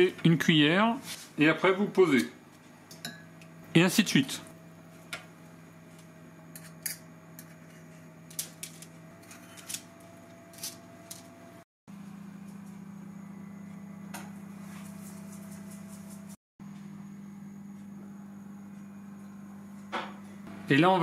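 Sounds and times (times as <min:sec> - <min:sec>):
steady low hum: 0:00.2 - 0:21.0.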